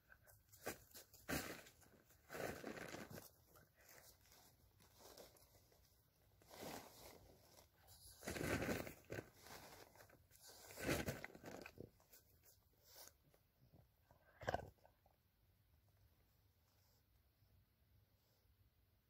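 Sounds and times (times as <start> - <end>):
plastic tarp rustling and crinkling: 0.7 - 5.8, 6.4 - 12.0.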